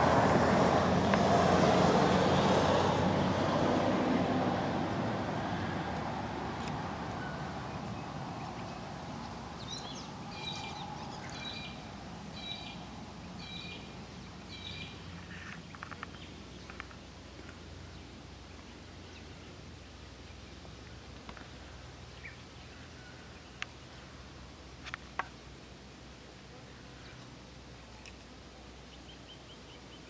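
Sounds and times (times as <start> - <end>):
bird chirping: 7.2 - 17.1, 28.8 - 30.0.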